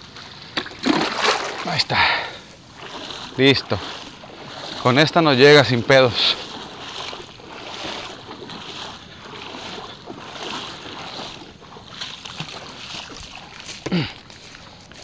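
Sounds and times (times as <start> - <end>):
seawater splashing on shore: 0.0 - 15.0.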